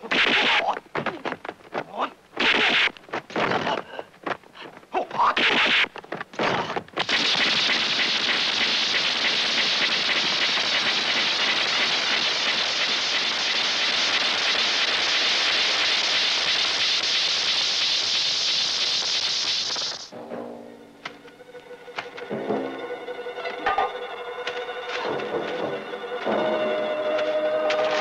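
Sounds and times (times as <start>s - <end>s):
steady rushing hiss: 6.9s - 20.1s.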